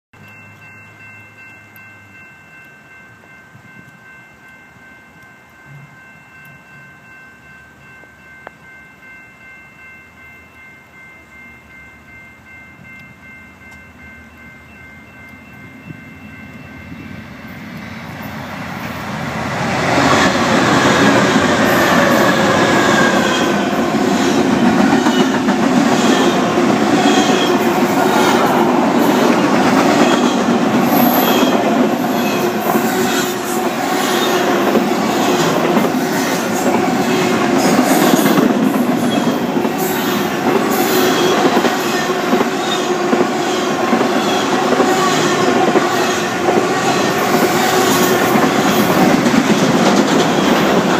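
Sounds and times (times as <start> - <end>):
freight train roar: 0.2 - 50.9
wheels clacking over rail joints: 19.0 - 50.9.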